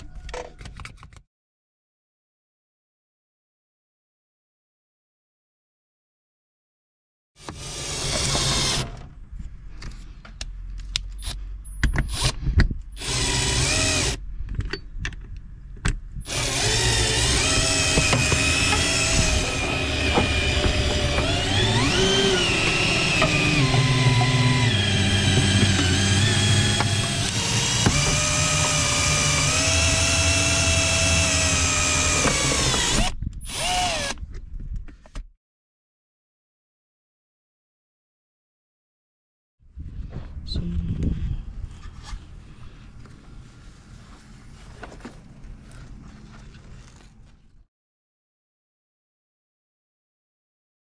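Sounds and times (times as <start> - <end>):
cordless drill motor running: 7.4 - 8.9, 13.0 - 14.2, 16.3 - 34.2.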